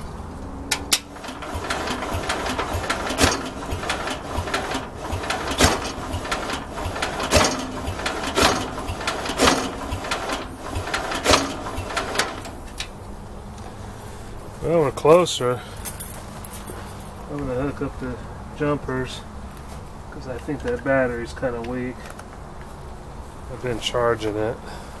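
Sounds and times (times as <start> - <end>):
engine cranking with starter: 0.7 - 13.0.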